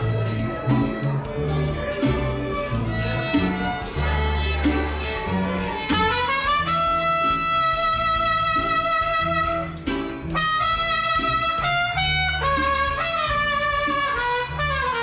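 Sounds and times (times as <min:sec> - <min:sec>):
bass accompaniment: 0:00.0 - 0:15.0
guitar accompaniment: 0:00.0 - 0:15.0
trumpet playing a melody: 0:00.0 - 0:15.0.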